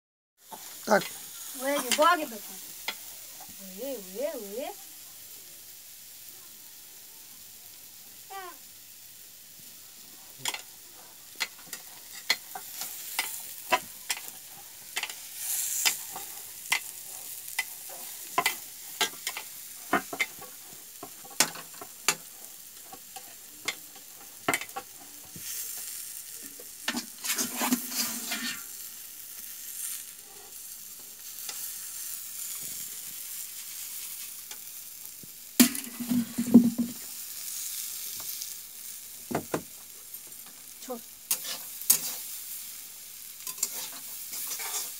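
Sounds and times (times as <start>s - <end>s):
vegetables sizzling: 0.4s - 44.9s
metal spatula scraping a pan: 10.2s - 28.8s, 41.3s - 42.4s, 43.3s - 44.9s.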